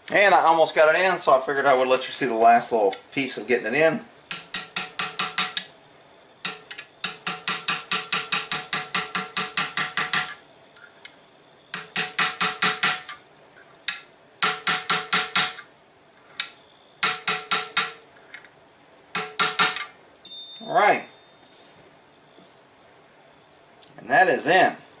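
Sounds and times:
hammer tapping metal punch: 0:04.3 - 0:05.7, 0:06.4 - 0:10.4, 0:11.8 - 0:13.2, 0:13.9 - 0:15.6, 0:17.0 - 0:18.0, 0:19.2 - 0:20.6.

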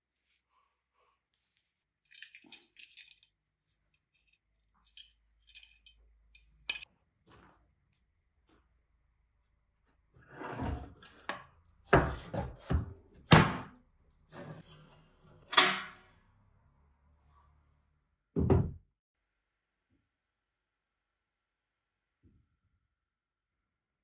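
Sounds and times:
metal hasp chain moving: 0:02.1 - 0:03.3, 0:04.1 - 0:06.8
hollow wooden knocks and thuds: 0:18.4 - 0:18.8.

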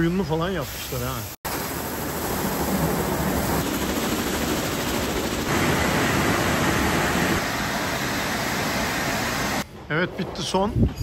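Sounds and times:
car wash rushing: 0:01.0 - 0:09.6.

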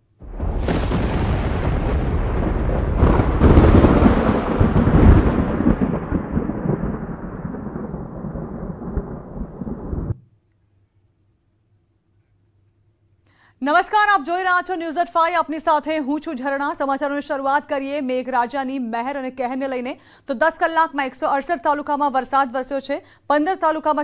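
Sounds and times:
rolling thunder crack: 0:00.2 - 0:10.2
steady rushing rain noise: 0:00.2 - 0:10.2.

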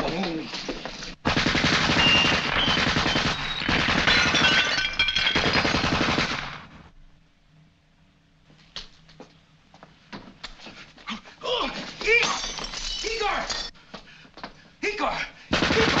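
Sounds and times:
submachine gun automatic bursts: 0:01.3 - 0:04.4, 0:05.4 - 0:06.6, 0:15.5 - 0:16.0
glass bottles shattering: 0:02.6 - 0:05.9, 0:12.1 - 0:13.7.

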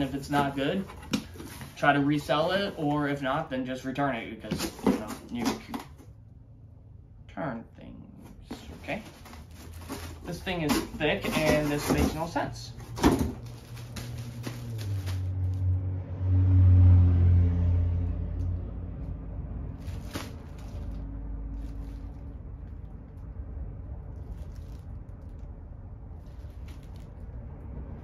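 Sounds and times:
plastic bag crinkling: 0:08.6 - 0:15.7, 0:19.8 - 0:23.3, 0:24.0 - 0:27.4
low rumble: 0:12.7 - 0:28.0.

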